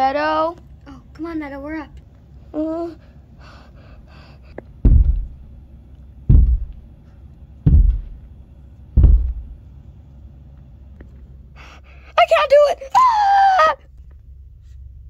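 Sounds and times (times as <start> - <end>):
heavy deep thumps: 4.8 - 5.5, 6.2 - 6.9, 7.6 - 9.6.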